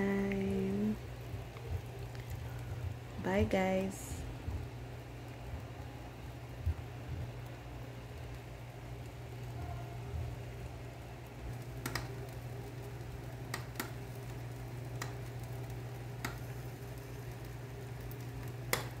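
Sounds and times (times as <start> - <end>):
steady low hum: 0.0 - 19.0
sharp clicks: 11.8 - 12.1.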